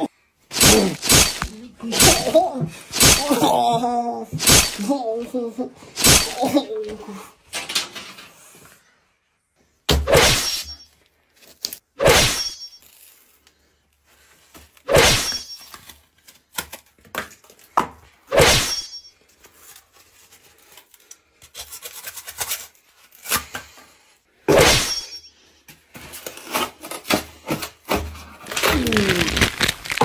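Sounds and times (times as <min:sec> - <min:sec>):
loud sharp impacts: 0:00.5 - 0:03.3
knocks and scuffling: 0:00.5 - 0:04.9, 0:27.7 - 0:30.0.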